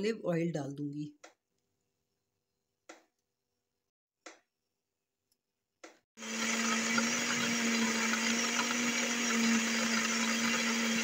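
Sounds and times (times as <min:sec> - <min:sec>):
electric blender grinding: 0:06.2 - 0:11.0.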